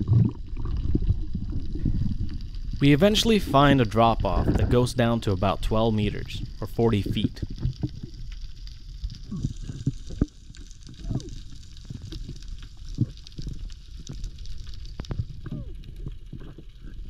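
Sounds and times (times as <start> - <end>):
low underwater rumble: 0.0 - 17.0
underwater clicks and crackling: 0.0 - 17.0.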